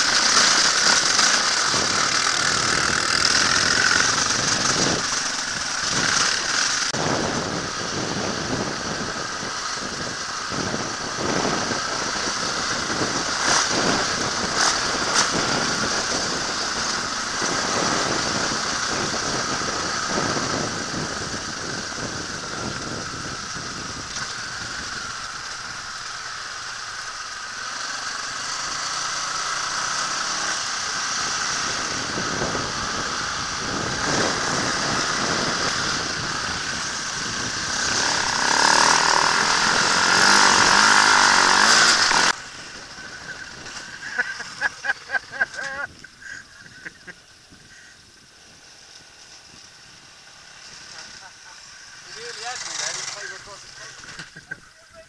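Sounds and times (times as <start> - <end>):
bike knocking and rattling: 0.0 - 55.0
dirt bike engine under load: 31.6 - 48.2, 48.8 - 54.9.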